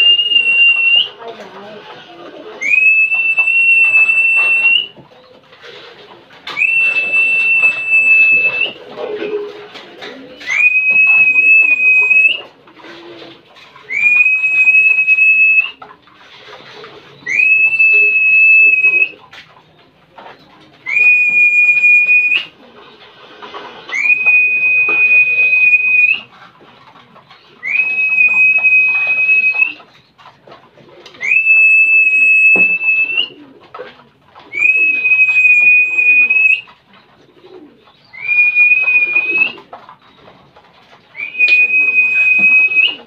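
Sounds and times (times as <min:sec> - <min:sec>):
long high whistle: 0:00.0 - 0:01.1, 0:02.6 - 0:04.9, 0:06.5 - 0:08.8, 0:10.5 - 0:12.4, 0:13.9 - 0:15.8, 0:17.3 - 0:19.1, 0:20.9 - 0:22.5, 0:23.9 - 0:26.2, 0:27.6 - 0:29.7, 0:31.2 - 0:33.3, 0:34.6 - 0:36.7, 0:38.2 - 0:39.6, 0:41.2 - 0:43.0
pigeons cooing: 0:00.0 - 0:43.0.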